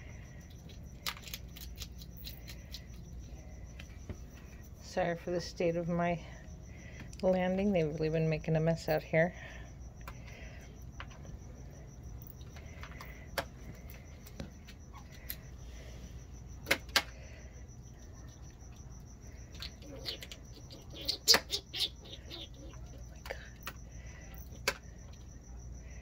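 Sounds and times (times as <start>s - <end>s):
cricket trill: 0.0s - 26.0s
skunks crunching food: 0.1s - 4.8s, 9.9s - 25.7s.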